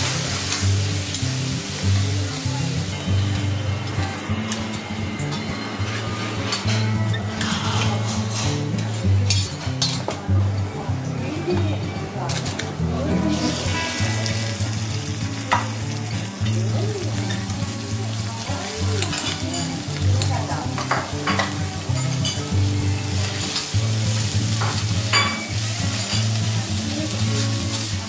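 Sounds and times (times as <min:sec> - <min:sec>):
vegetables sizzling in oil: 0:00.0 - 0:06.0, 0:12.2 - 0:28.0.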